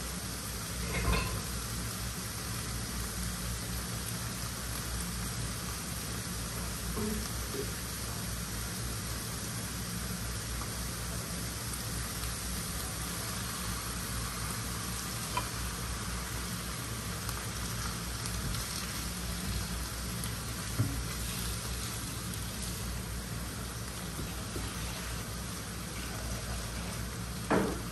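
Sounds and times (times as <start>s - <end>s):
vegetables sizzling in a frying pan: 0.0s - 27.9s.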